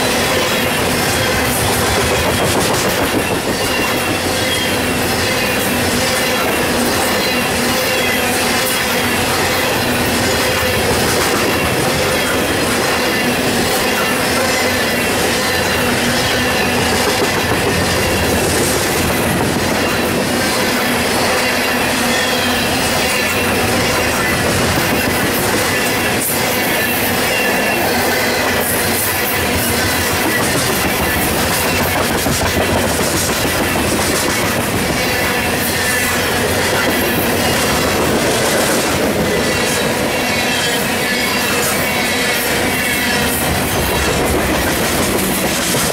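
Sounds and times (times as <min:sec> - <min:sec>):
wheel squeal: 0:00.0 - 0:18.6
train wheels rumbling: 0:00.0 - 0:45.9.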